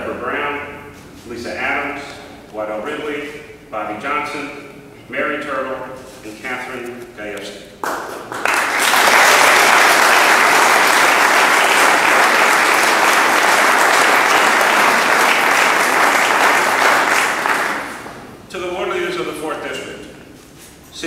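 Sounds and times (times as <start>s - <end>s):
audience applauding: 7.8s - 18.2s.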